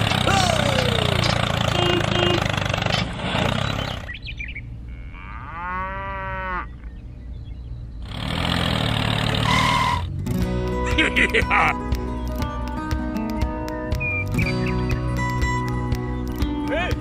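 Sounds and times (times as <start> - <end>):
engine running: 0.0 - 4.4, 7.9 - 16.9
cow mooing: 4.9 - 6.8.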